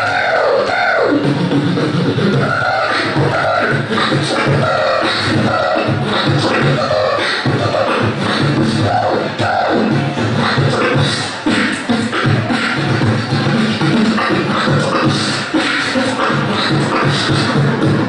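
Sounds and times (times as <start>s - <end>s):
beatboxing into microphone: 0.0s - 18.0s.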